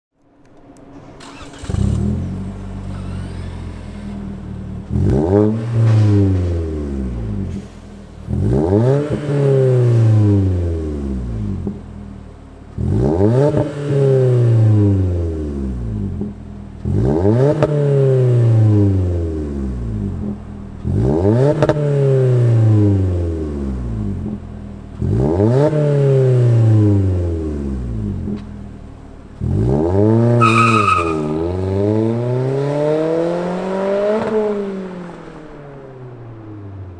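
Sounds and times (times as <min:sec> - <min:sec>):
car accelerating away: 0:00.9 - 0:36.9
car engine revving: 0:00.9 - 0:36.9
brief high squeak: 0:02.8 - 0:04.2, 0:30.4 - 0:31.5.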